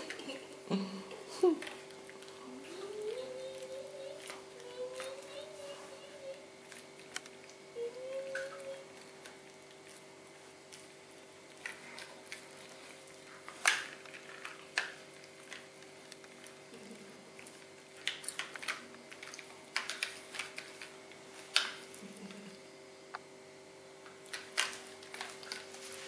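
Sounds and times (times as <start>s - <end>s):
faint steady hum: 0.0s - 26.0s
dog gnawing a bone: 1.7s - 5.8s, 8.5s - 22.1s.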